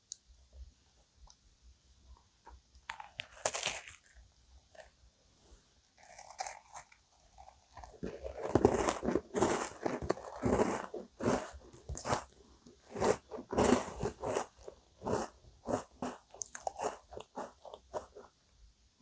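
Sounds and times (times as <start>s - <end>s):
crunchy biscuit bite and chewing: 2.9s - 4.2s, 6.0s - 18.3s.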